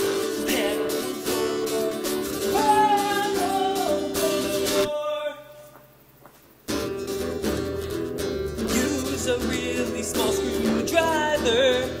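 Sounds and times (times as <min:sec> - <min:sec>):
person singing: 0:00.0 - 0:05.7, 0:08.7 - 0:12.0
acoustic guitar: 0:00.0 - 0:12.0.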